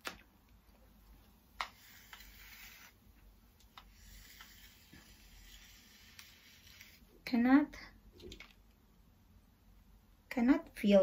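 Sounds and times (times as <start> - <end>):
hair straightener swishing through hair: 1.6 - 3.0, 3.7 - 7.1.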